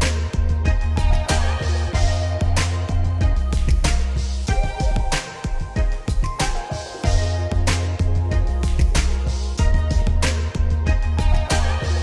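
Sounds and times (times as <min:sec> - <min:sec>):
steady drum beat: 0:00.0 - 0:11.8
music with heavy bass line: 0:00.0 - 0:12.0.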